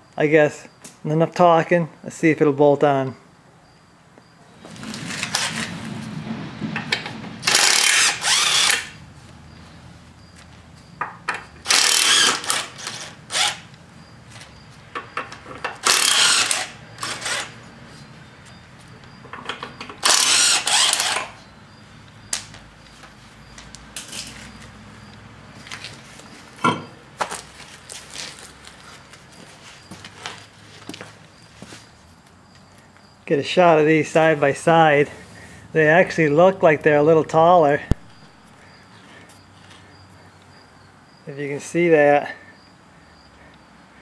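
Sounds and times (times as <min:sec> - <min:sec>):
power tool spinning lug nuts: 0:04.6 - 0:06.1, 0:06.8 - 0:09.0, 0:11.4 - 0:13.8, 0:15.0 - 0:17.7, 0:19.3 - 0:21.4.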